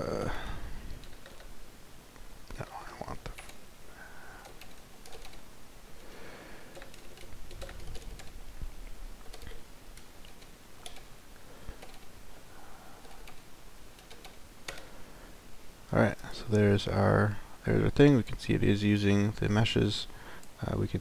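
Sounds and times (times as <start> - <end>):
typing on keyboard: 1.0 - 1.5, 4.4 - 5.4, 6.7 - 8.4, 9.2 - 11.1, 11.8 - 12.1, 14.0 - 14.9.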